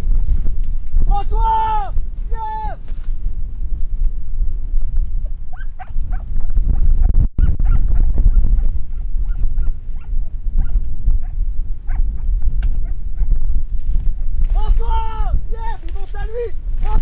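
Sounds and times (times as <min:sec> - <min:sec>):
wind and handling rumble: 0:00.0 - 0:17.0
dog yelping: 0:05.5 - 0:06.3, 0:07.4 - 0:07.8.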